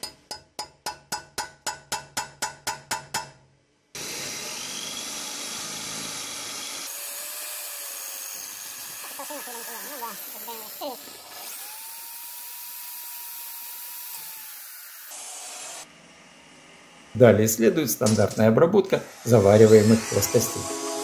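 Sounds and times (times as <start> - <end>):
hammer tapping metal punch: 0.0 - 3.5.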